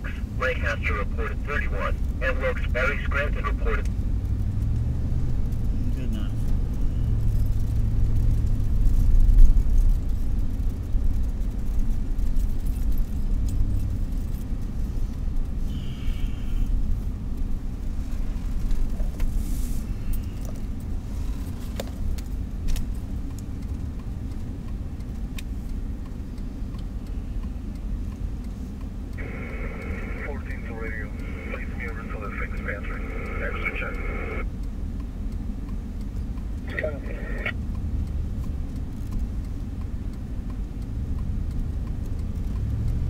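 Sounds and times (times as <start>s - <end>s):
engine and tyre rumble: 0.0s - 43.0s
light clicks and jingles: 6.4s - 15.6s.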